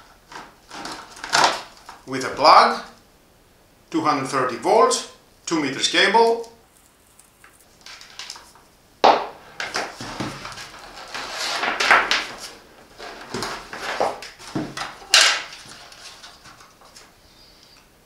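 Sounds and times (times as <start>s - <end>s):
plastic case handling noise: 0.3s - 2.0s, 9.5s - 17.1s
sharp knocks: 9.0s - 10.4s.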